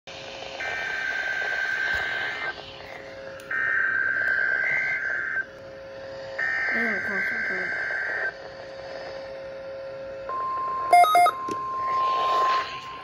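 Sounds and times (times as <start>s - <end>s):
low hum: 0.1s - 13.0s
radio hiss: 0.5s - 5.4s, 6.4s - 9.4s, 11.8s - 13.0s
buzzy data bursts from radio: 0.6s - 2.9s, 6.4s - 9.4s.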